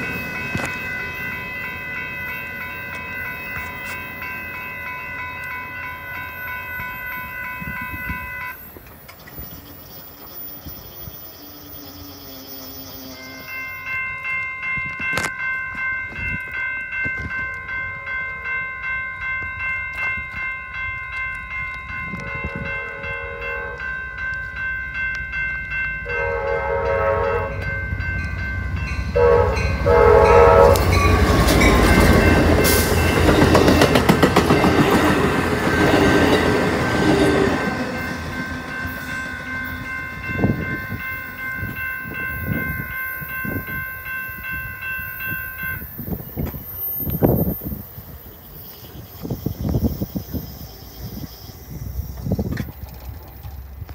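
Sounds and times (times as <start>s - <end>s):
crossing bells ringing: 0.0s - 53.9s
train horn: 6.8s - 8.6s, 22.2s - 24.0s, 26.0s - 27.8s, 29.1s - 33.2s
train wheels rumbling and clattering: 27.6s - 44.6s.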